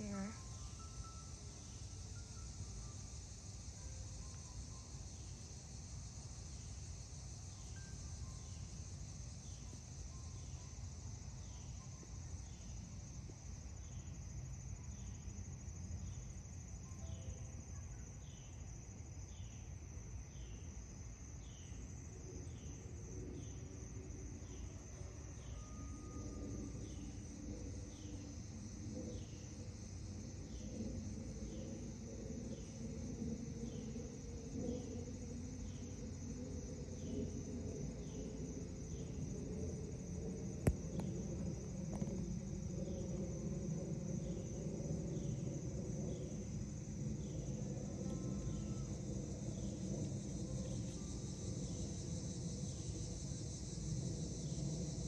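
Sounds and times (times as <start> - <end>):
insects buzzing: 0.0 - 55.0
low background rumble: 21.2 - 55.0.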